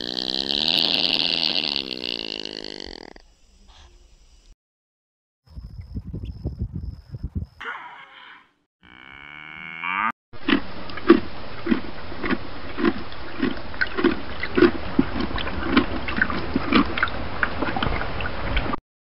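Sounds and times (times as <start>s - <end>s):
cow mooing: 7.6s - 10.1s
horse chewing grass: 10.5s - 17.0s.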